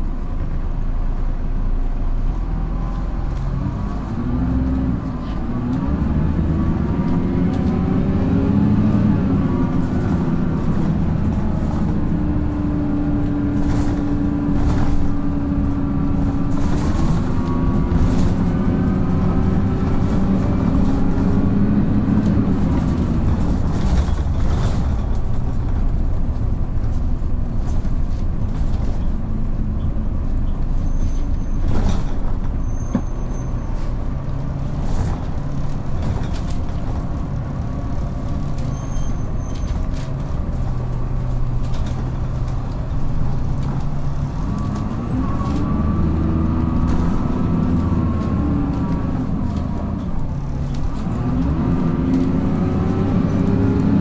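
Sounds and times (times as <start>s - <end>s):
bus engine and transmission whine: 0.0s - 54.0s
interior rattles and knocks: 10.0s - 53.5s
short high squeals: 32.6s - 33.8s.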